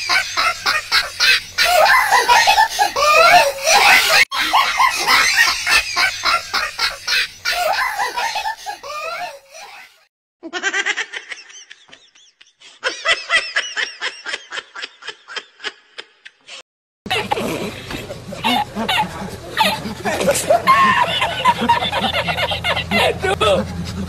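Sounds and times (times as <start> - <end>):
human laughter: 0.0 - 24.0.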